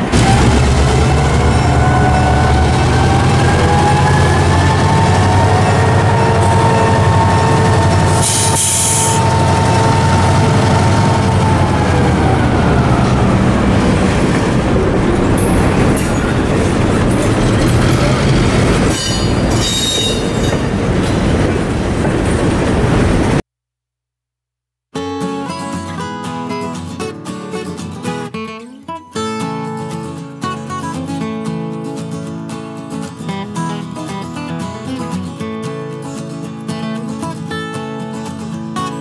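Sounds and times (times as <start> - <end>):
diesel locomotive engines rumbling: 0.0 - 23.4
freight cars clanking: 0.0 - 23.4
wheel squeal: 18.8 - 20.7.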